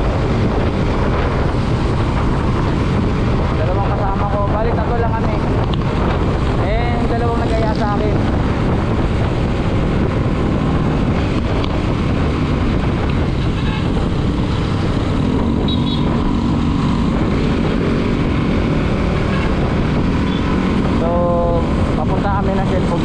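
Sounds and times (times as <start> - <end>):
wind rush on microphone: 0.0 - 23.0
motorcycle engine running: 5.2 - 23.0.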